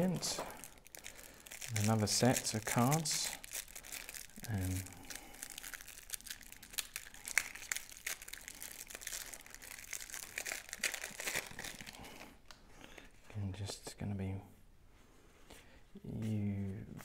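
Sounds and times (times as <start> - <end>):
plastic wrapping crinkling: 0.0 - 13.2.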